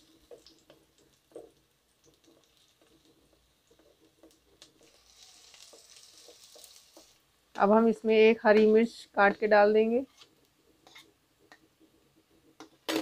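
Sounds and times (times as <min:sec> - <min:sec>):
onions sizzling in oil: 0:00.0 - 0:08.6
wooden spatula scraping pan: 0:02.3 - 0:07.2, 0:08.5 - 0:12.6.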